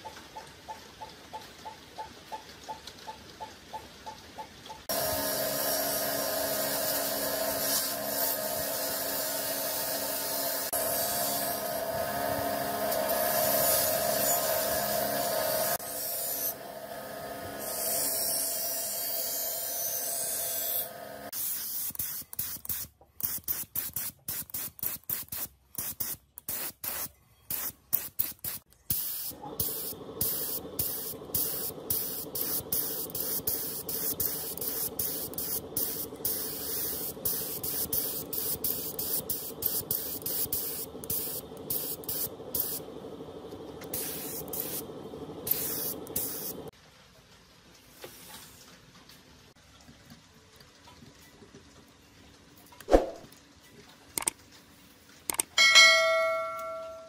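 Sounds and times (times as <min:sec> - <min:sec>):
spray gun hissing: 0:04.9 - 0:16.5, 0:26.0 - 0:43.1, 0:43.9 - 0:46.7
bench grinder on metal: 0:04.9 - 0:16.7, 0:17.4 - 0:20.9.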